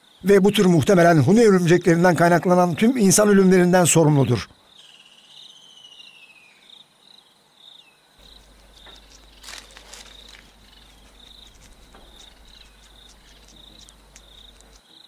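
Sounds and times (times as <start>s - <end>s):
insects chirping: 0.0s - 15.0s
sharp rustles and clicks: 8.2s - 14.9s.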